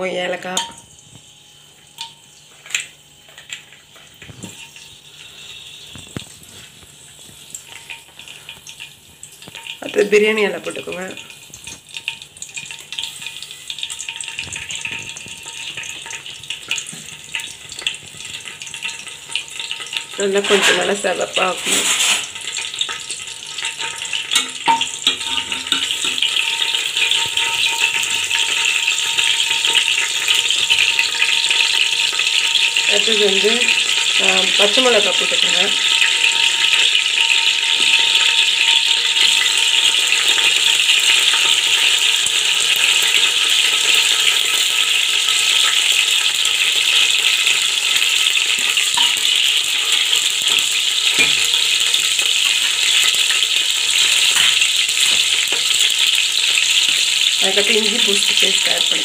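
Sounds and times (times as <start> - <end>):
spices sizzling in hot oil: 0.0 - 59.0
steel bowl tapping pot: 0.5 - 0.9, 23.7 - 30.0.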